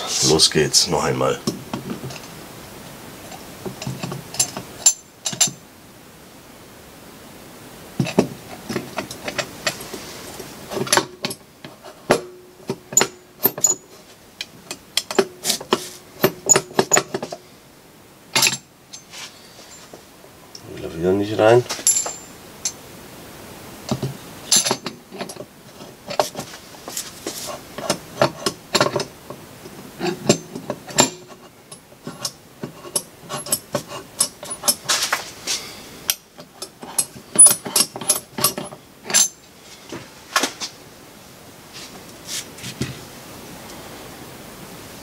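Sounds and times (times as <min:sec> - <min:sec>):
metal parts clinking and scraping: 0:18.4 - 0:19.9, 0:21.7 - 0:22.4, 0:24.5 - 0:29.1, 0:30.0 - 0:39.4.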